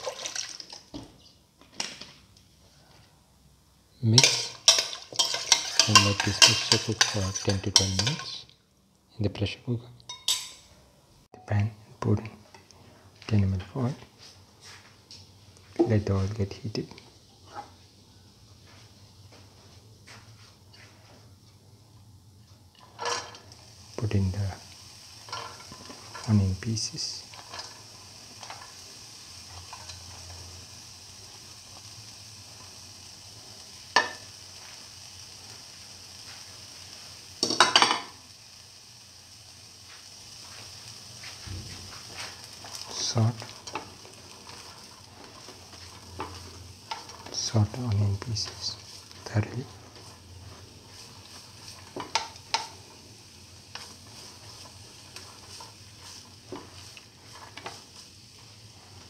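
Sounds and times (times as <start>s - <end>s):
onion sizzling in oil: 0.0s - 1.5s, 3.5s - 10.5s, 12.0s - 59.0s
kitchenware clinking: 4.2s - 8.4s, 10.1s - 10.8s, 37.4s - 38.2s
spatula scraping frying pan: 4.2s - 8.4s, 22.8s - 23.5s, 25.2s - 26.3s, 29.4s - 30.4s, 42.1s - 53.0s, 53.6s - 59.0s.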